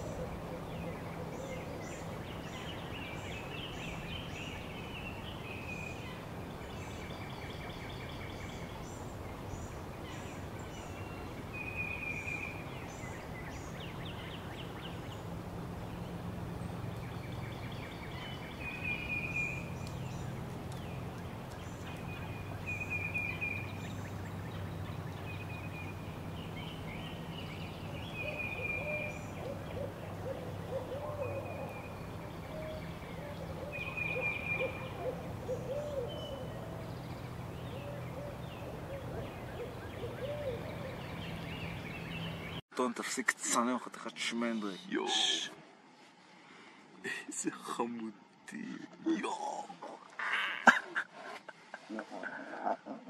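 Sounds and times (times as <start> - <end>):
steady low hum: 0.0 - 42.6
birds chirping: 0.0 - 51.0
bird warbling call: 15.9 - 42.6.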